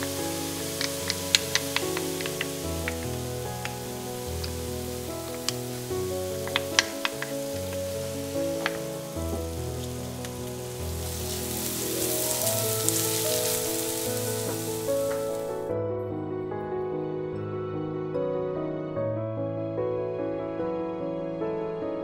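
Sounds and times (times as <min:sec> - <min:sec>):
onion and garlic sizzling in oil: 0:00.0 - 0:15.7
soft background music: 0:00.0 - 0:22.0.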